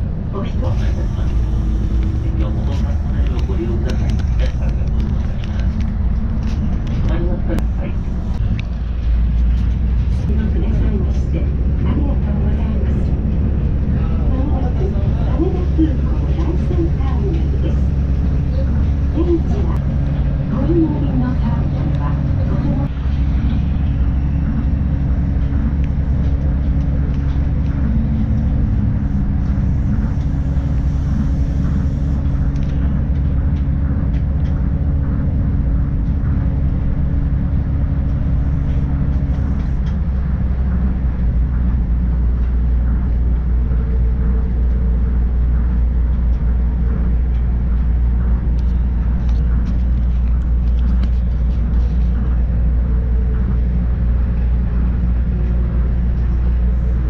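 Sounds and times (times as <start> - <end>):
train rumble from inside: 0.0 - 57.0
humming tone: 12.5 - 57.0.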